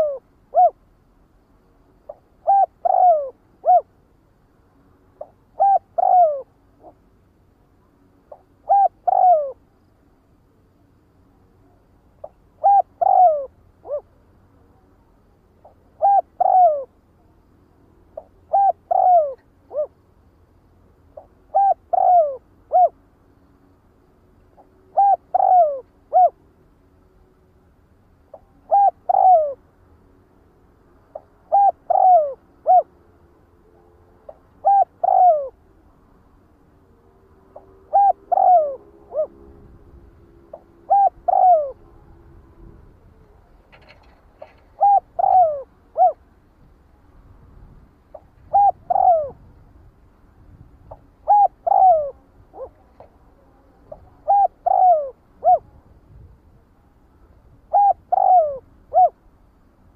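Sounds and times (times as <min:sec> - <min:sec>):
dove cooing: 0:00.0 - 0:00.8, 0:02.1 - 0:04.0, 0:05.2 - 0:07.0, 0:08.3 - 0:09.6, 0:12.2 - 0:14.2, 0:15.6 - 0:17.0, 0:18.2 - 0:20.0, 0:21.1 - 0:23.0, 0:24.6 - 0:26.4, 0:28.3 - 0:29.6, 0:31.1 - 0:33.0, 0:34.3 - 0:35.6, 0:37.5 - 0:42.4, 0:43.0 - 0:46.2, 0:48.1 - 0:49.5, 0:50.8 - 0:55.8, 0:57.7 - 0:59.2.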